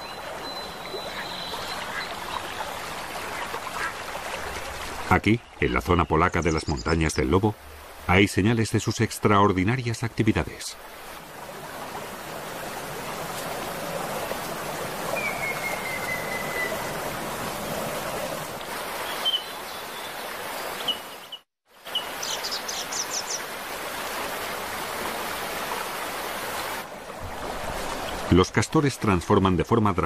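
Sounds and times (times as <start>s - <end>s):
birds chirping: 0.0s - 10.6s, 15.0s - 17.0s, 18.9s - 23.5s
stream rushing: 0.0s - 30.0s.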